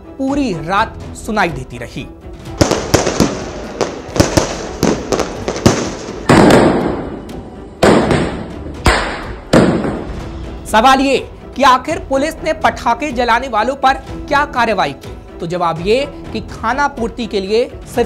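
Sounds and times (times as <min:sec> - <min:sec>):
firecrackers cracking: 0:02.5 - 0:07.2, 0:07.8 - 0:10.1
fireworks bangs echoing: 0:02.5 - 0:10.2.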